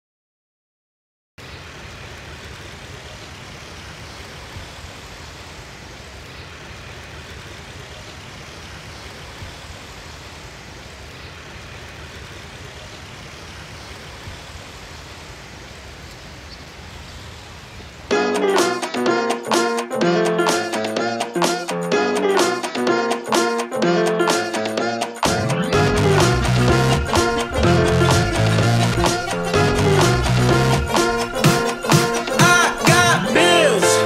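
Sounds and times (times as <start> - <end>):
loud music with brass and guitar: 18.1 - 34.0.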